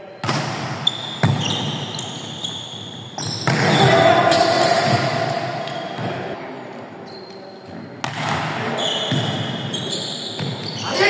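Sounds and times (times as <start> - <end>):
volleyball being hit and bounced: 0.2 - 1.8, 3.1 - 6.3, 8.0 - 9.5
players calling out: 3.2 - 6.4.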